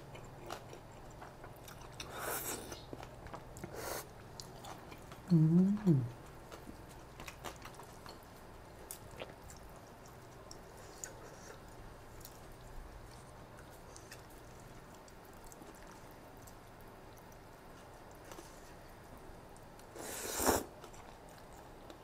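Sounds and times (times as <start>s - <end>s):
chewing with wet mouth clicks: 0.0s - 5.3s, 6.1s - 20.0s, 20.8s - 22.0s.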